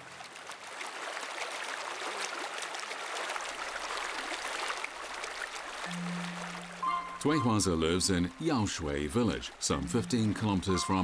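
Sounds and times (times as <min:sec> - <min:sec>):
stream flowing: 0:00.0 - 0:11.0.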